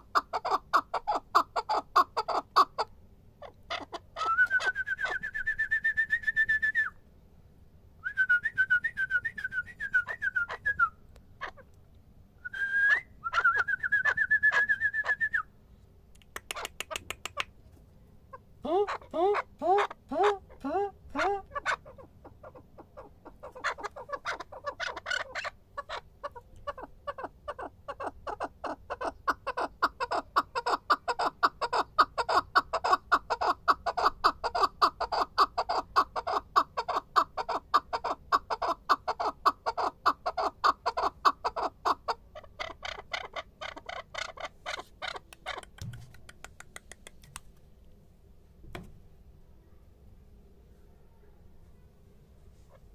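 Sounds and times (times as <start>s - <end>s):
partridge rapid clucking call: 0.0s - 5.2s, 16.2s - 17.6s, 18.3s - 47.3s.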